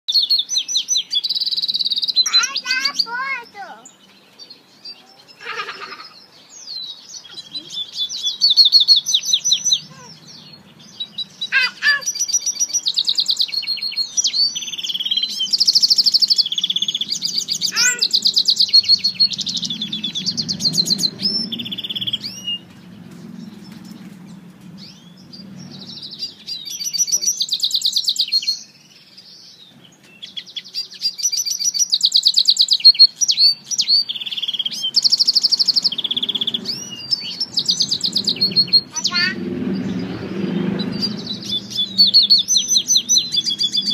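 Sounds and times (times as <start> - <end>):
bird singing with fast trills: 0.1 - 43.9
downward-sweeping bird whistles: 7.7 - 9.9, 39.9 - 43.9.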